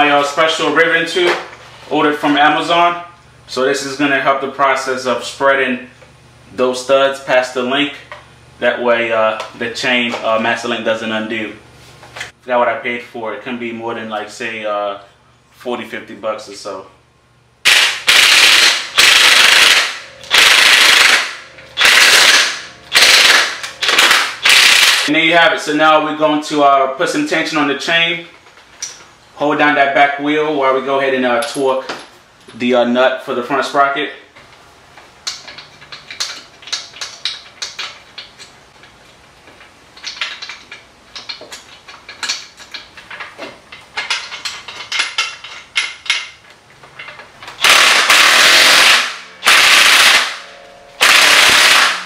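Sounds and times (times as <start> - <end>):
power tool bursts: 17.6 - 25.1, 47.6 - 52.0
metal-on-metal clicks: 35.2 - 48.2.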